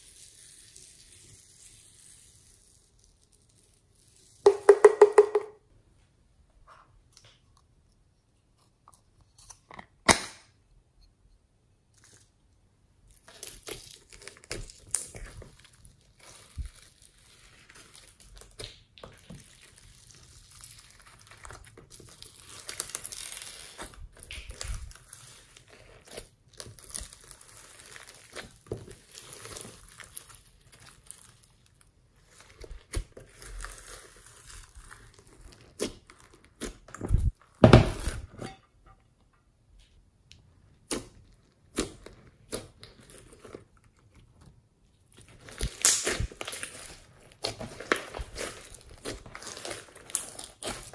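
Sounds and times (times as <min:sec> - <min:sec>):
slime crackling and squishing: 0:13.0 - 0:37.6, 0:40.5 - 0:50.9.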